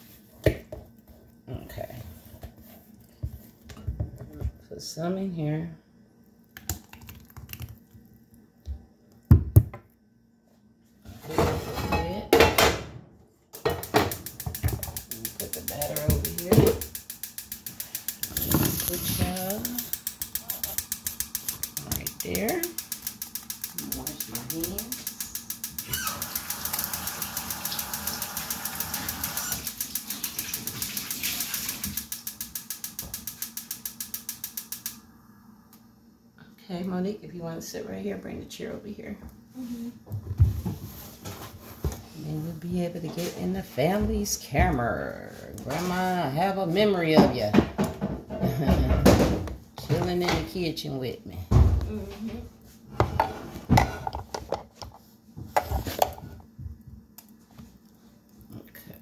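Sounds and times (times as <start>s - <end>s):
mechanical rattle of clicks: 13.8s - 35.0s.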